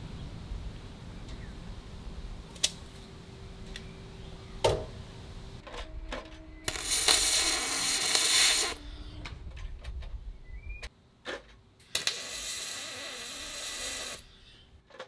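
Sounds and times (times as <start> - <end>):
welding arc hissing and crackling: 6.7 - 9.0, 11.8 - 14.3.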